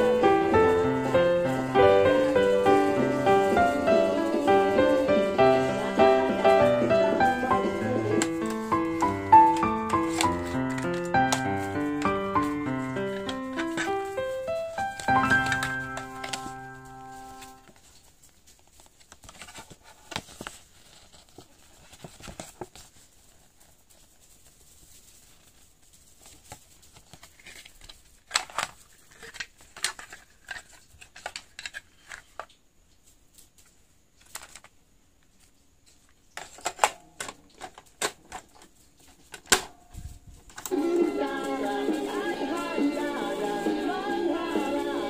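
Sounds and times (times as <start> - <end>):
plastic cassette case clicks: 36.4 - 38.6, 39.3 - 39.8.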